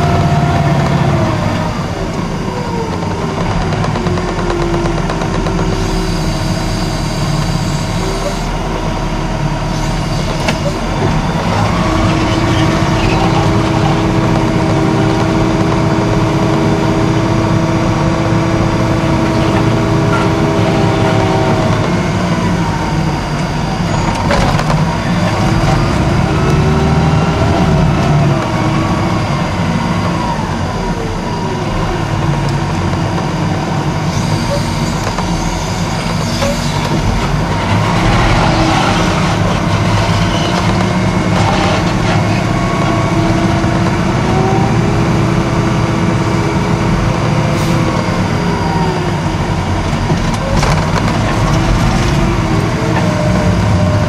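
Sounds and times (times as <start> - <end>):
diesel engine running under load: 0.0 - 54.0
machine whine: 0.0 - 54.0.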